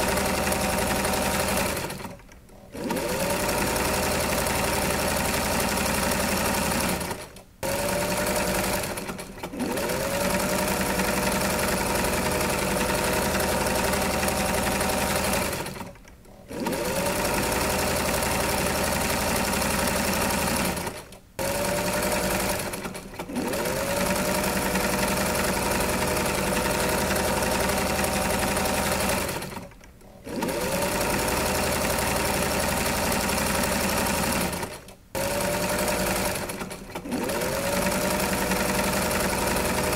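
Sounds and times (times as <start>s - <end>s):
electric sewing machine running: 0.0s - 39.9s.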